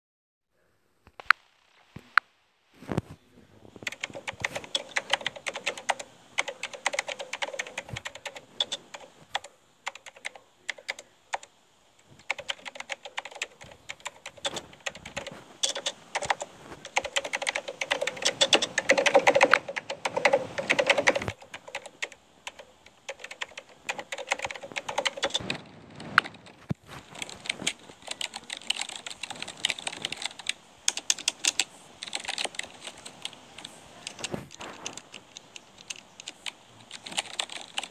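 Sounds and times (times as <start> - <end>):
typing on computer keyboard: 3.8 - 11.5, 12.1 - 26.4, 27.0 - 37.9.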